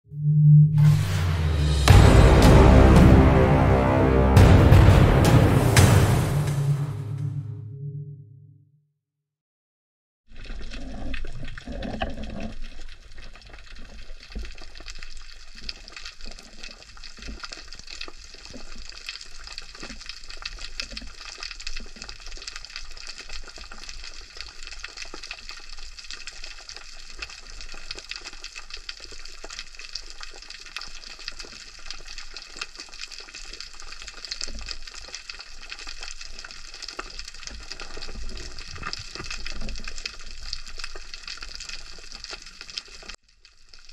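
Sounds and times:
low rumble: 0:00.1 - 0:08.5.

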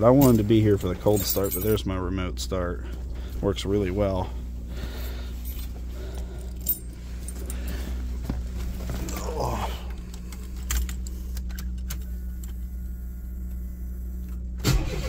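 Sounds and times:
keys jangling on a key ring: 0:00.0 - 0:01.8, 0:05.5 - 0:07.8
steady low hum: 0:00.0 - 0:15.0.

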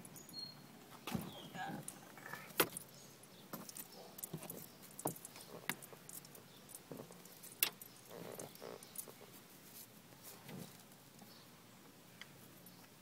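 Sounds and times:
metal bracelets clinking: 0:02.8 - 0:09.2.

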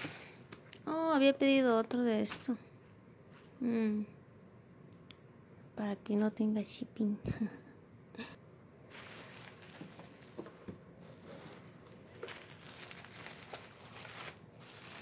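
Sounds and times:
bubble wrap crinkling: 0:08.9 - 0:15.0.

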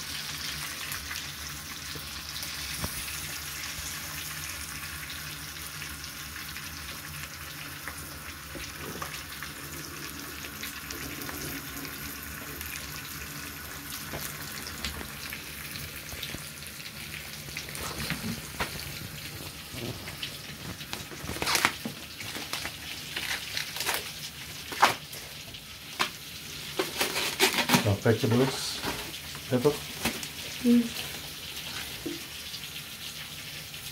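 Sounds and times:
meat sizzling in a frying pan: 0:00.0 - 0:33.9
rustling of handling: 0:17.9 - 0:25.3, 0:26.7 - 0:29.2.

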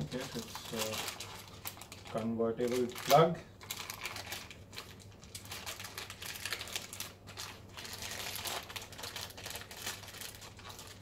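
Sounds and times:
wrapping crinkling and rustling: 0:00.0 - 0:11.0.

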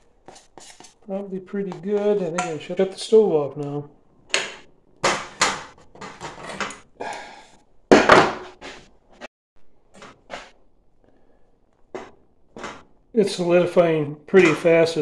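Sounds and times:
saucepan clanking and scraping: 0:00.3 - 0:03.2, 0:04.4 - 0:07.0.

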